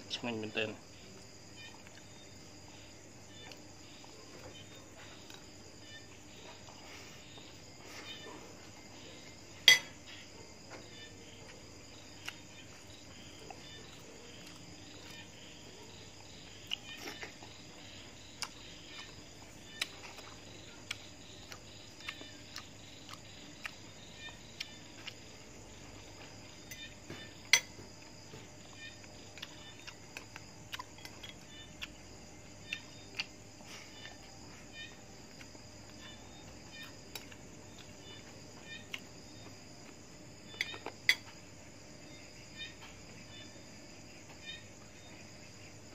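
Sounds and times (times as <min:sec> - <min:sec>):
crickets chirping: 0:00.0 - 0:45.9
cutlery clinking on plate: 0:09.6 - 0:10.0, 0:27.5 - 0:27.8
chewing: 0:18.3 - 0:25.4, 0:29.0 - 0:32.0, 0:32.6 - 0:34.3.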